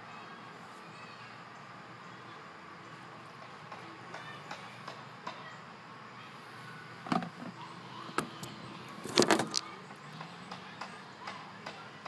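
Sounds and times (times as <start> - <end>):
knocks of plastic jug and funnel: 7.0 - 7.5.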